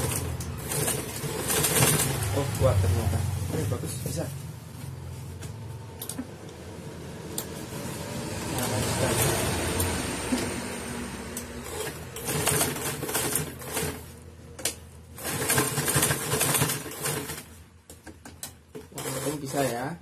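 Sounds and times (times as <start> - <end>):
sewing machine stitching: 0.0 - 2.7, 11.6 - 14.1, 15.2 - 17.6, 18.7 - 19.9.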